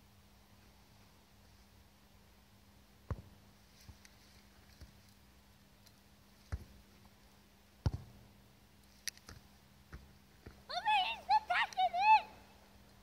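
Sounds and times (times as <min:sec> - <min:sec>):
football kicked on grass: 0:03.0 - 0:04.0, 0:06.4 - 0:06.8, 0:07.8 - 0:08.2, 0:09.3 - 0:10.7.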